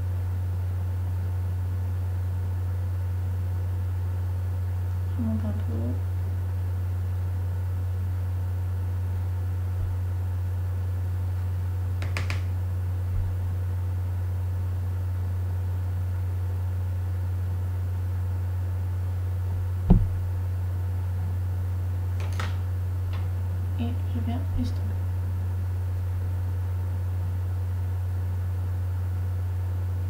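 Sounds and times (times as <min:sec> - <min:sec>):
low hum: 0:19.1 - 0:22.0
short knock: 0:19.9 - 0:20.3.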